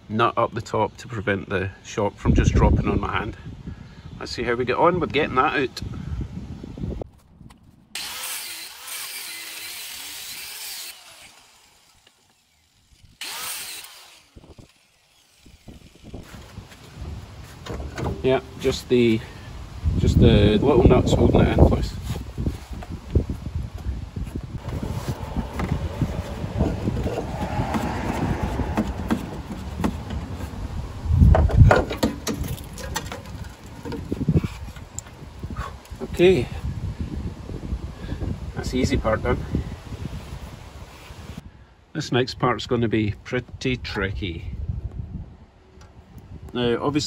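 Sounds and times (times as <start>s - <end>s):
angle grinder cutting steel: 8.0s - 16.8s
heavy thumps: 24.6s - 30.6s
metal parts knocking and clattering: 31.3s - 34.2s.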